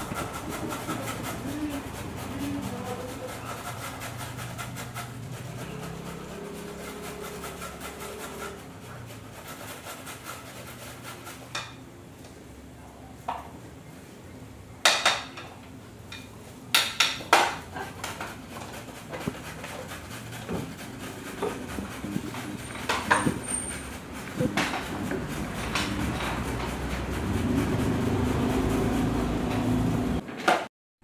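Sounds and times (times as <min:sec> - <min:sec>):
carrot grated on metal grater: 0:00.0 - 0:11.8, 0:18.0 - 0:29.9
grater and dishes clattering: 0:00.0 - 0:11.8, 0:17.2 - 0:29.9.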